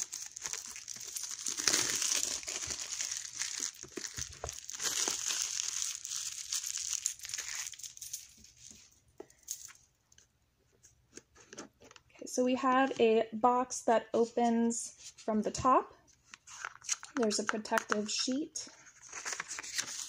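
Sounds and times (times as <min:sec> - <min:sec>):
plastic shrink-wrap crinkling: 0:00.0 - 0:08.9, 0:19.0 - 0:20.0.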